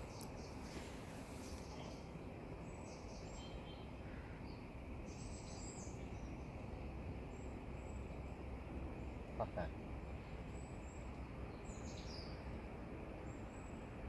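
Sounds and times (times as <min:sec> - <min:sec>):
faint bird chirps: 0:00.0 - 0:06.6.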